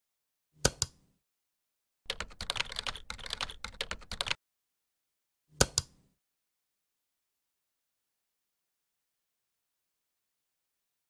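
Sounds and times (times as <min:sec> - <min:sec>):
computer keyboard typing: 0:02.1 - 0:04.4
mouse clicks: 0:05.6 - 0:06.0.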